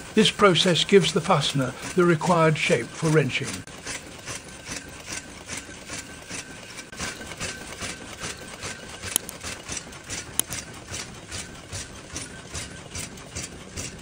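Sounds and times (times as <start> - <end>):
forming machine clattering: 0.0 - 14.0
sharp metallic clicks: 7.1 - 14.0.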